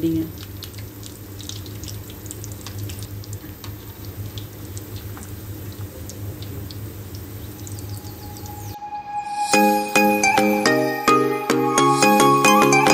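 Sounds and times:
food deep-frying in oil: 0:00.0 - 0:08.8.

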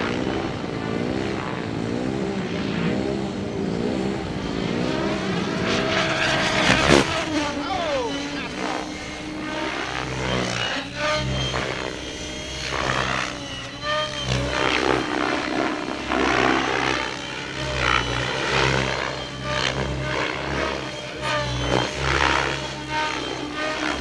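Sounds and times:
helicopter rotor blades whooshing: 0:00.0 - 0:24.0
low rotor hum: 0:00.0 - 0:24.0
motor whine bending in pitch: 0:00.0 - 0:24.0.

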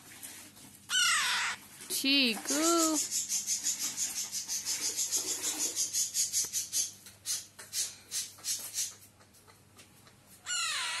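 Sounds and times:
parakeet chick raspy hissing: 0:03.0 - 0:09.0.

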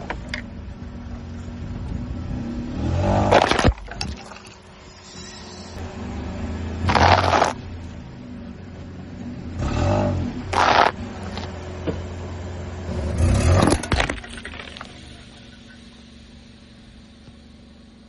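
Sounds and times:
car engine running: 0:05.8 - 0:18.0
tyre crunching dry pasta: 0:06.9 - 0:07.6, 0:10.5 - 0:11.0.

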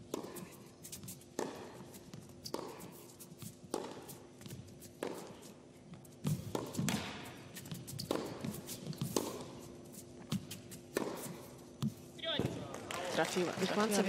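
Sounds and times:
tennis ball bouncing: 0:00.0 - 0:12.6
tennis racket striking ball: 0:00.0 - 0:12.6.

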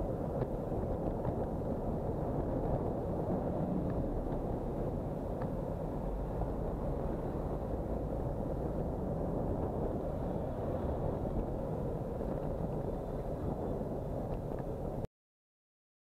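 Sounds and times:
busy city street traffic: 0:00.0 - 0:15.0
wind rumble on microphone: 0:00.0 - 0:15.1.

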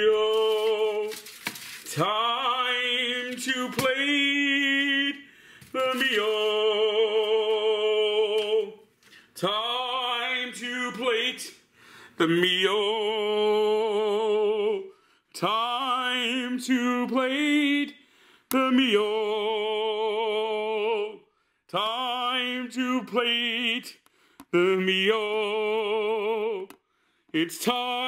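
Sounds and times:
man singing unaccompanied: 0:00.0 - 0:01.2, 0:01.9 - 0:11.6, 0:12.2 - 0:28.0
breaths: 0:05.2 - 0:05.8, 0:09.0 - 0:09.4, 0:11.6 - 0:12.2, 0:14.9 - 0:15.3, 0:18.0 - 0:18.5, 0:21.2 - 0:21.7, 0:24.0 - 0:24.5, 0:26.8 - 0:27.4.

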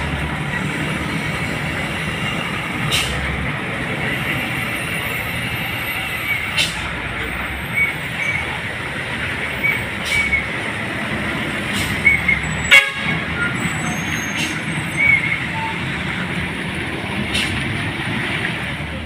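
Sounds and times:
tanker truck engines droning: 0:00.0 - 0:19.0
truck horn toot: 0:12.2 - 0:14.4.

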